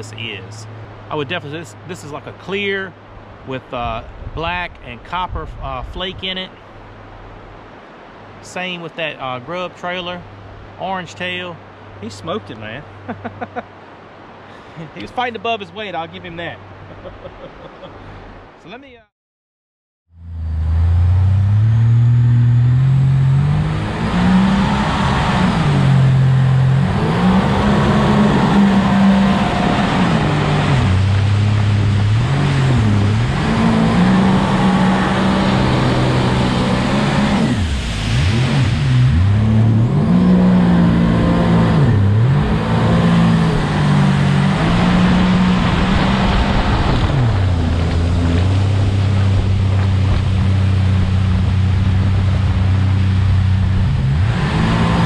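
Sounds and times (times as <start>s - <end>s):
rushing water and spray: 6.6s - 18.6s, 22.3s - 55.0s
jet boat engine revving: 20.1s - 55.0s.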